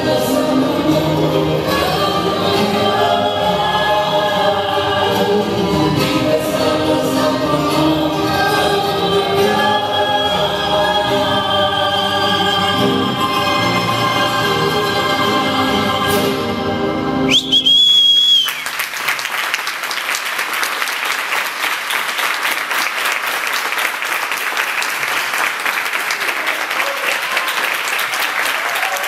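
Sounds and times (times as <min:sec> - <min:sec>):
choral music: 0:00.0 - 0:17.6
loud whistle: 0:17.3 - 0:18.8
audience applause: 0:17.7 - 0:29.0.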